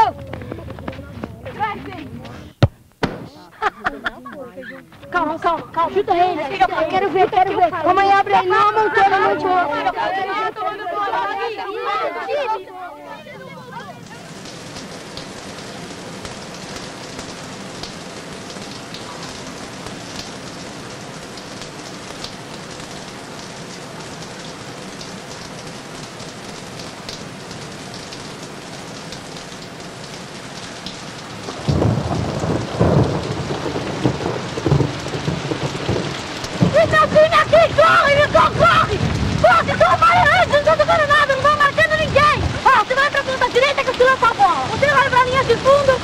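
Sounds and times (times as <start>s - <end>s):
deep uneven rumbling: 0.0s - 2.6s
crackling drips: 13.4s - 46.0s.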